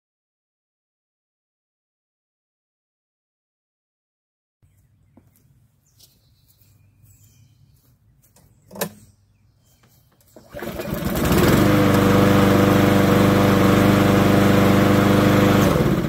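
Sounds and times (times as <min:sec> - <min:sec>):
lawn mower engine running: 0:10.3 - 0:16.0.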